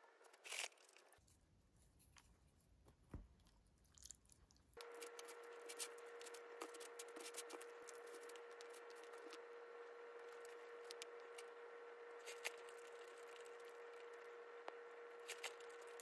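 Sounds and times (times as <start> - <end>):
chewing: 3.3 - 4.8
steady hum: 4.8 - 16.0.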